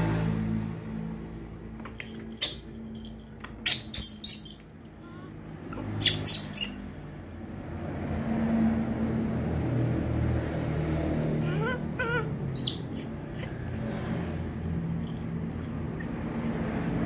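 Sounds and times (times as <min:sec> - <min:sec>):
baby monkeys squeaking: 0:01.8 - 0:06.9, 0:11.4 - 0:13.9, 0:15.5 - 0:17.0.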